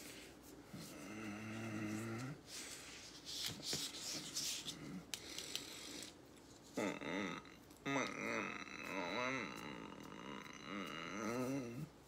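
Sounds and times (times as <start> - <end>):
short wavering vocal sound: 6.8 - 12.0.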